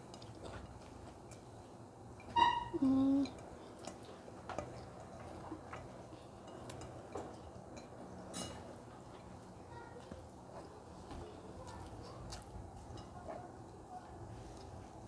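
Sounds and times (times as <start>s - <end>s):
person humming mmm: 2.7s - 3.4s.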